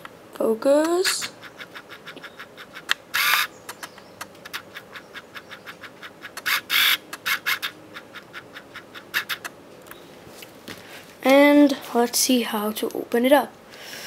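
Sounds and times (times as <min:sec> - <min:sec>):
small quick clicks: 0:02.1 - 0:04.6.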